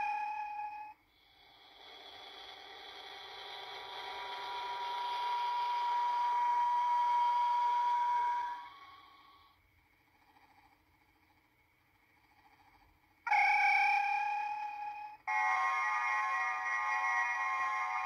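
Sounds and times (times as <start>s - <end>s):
shimmering electronic whine: 1.7s - 9.6s, 13.0s - 18.0s.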